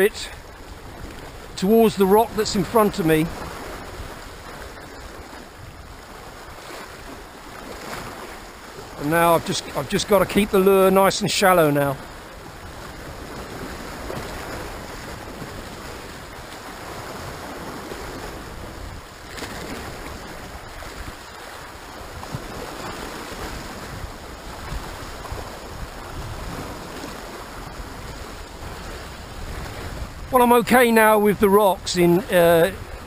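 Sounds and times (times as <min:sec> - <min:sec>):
wind rumble on microphone: 0:00.0 - 0:09.1, 0:12.0 - 0:33.0
sea surf washing against rocks: 0:00.0 - 0:33.0.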